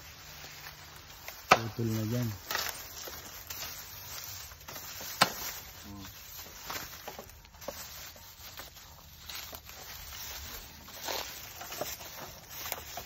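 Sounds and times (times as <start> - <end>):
bamboo being cut and handled: 0.0 - 13.0.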